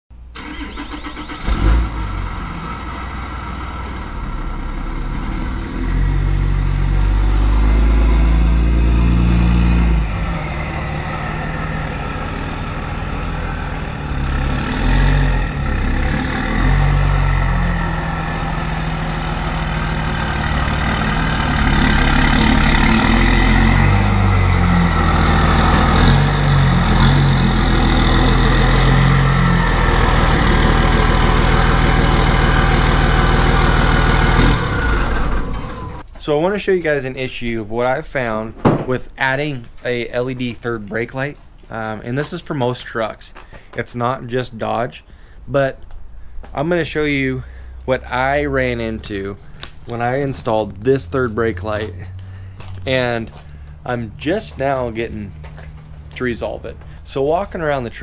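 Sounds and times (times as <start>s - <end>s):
pickup truck engine revving: 0.4s - 36.1s, 47.1s - 58.0s
sharp thump: 38.5s - 39.0s.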